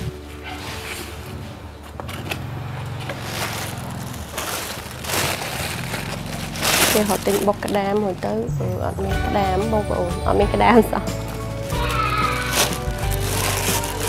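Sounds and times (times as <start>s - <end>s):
plastic bag crinkling: 2.0s - 8.5s, 10.5s - 14.0s.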